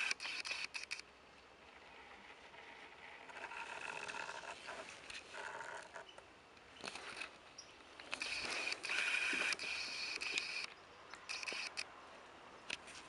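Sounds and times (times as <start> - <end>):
camera lens motor whirring: 0.0 - 1.0, 2.8 - 6.0, 8.1 - 10.7, 11.3 - 11.9.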